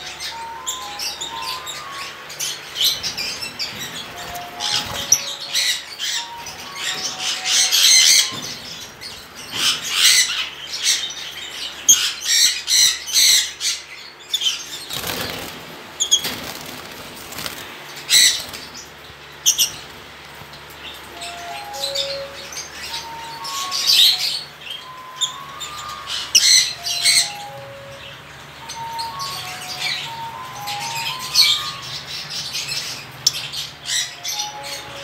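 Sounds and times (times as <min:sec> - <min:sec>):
faint background music: 0:00.0 - 0:10.7, 0:20.6 - 0:35.0
birds shrill chatter: 0:00.0 - 0:35.0.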